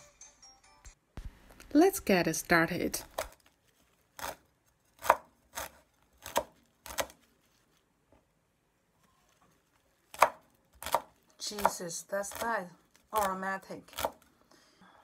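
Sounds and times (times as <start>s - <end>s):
cleaver chopping on wooden board: 5.0s - 7.2s, 10.1s - 12.5s.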